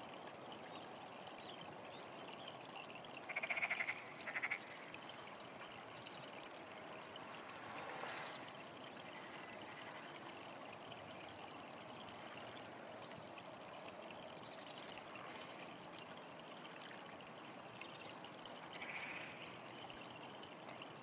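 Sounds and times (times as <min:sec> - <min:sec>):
frog croaking: 0:03.3 - 0:04.9, 0:18.7 - 0:19.4.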